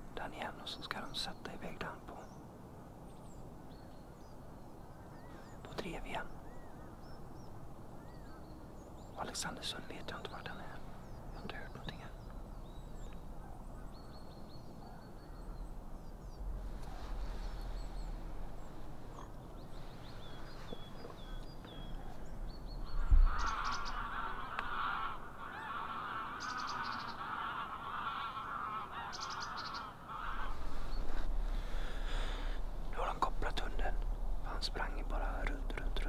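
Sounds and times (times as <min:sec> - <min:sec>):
low wind rumble: 0:00.0 - 0:36.0
small bird high calls: 0:03.1 - 0:36.0
geese honking: 0:23.0 - 0:31.2.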